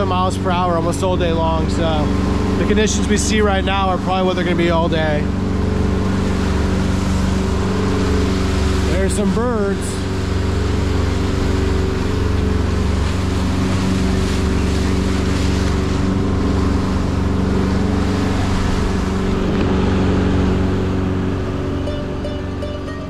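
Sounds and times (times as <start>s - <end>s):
boat engine running: 0.0s - 23.0s
rush of wind and water: 0.0s - 23.0s.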